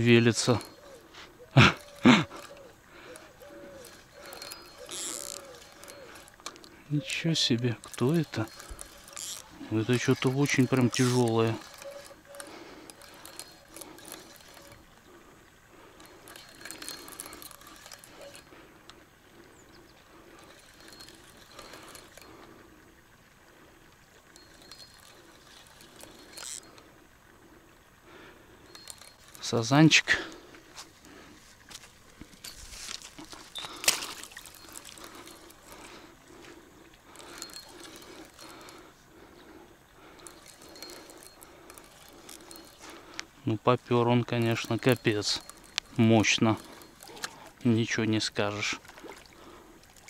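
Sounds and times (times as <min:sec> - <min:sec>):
fishing reel clicking: 0:01.8 - 0:30.5, 0:31.1 - 0:50.0
fish splashing at water surface: 0:33.7 - 0:35.4.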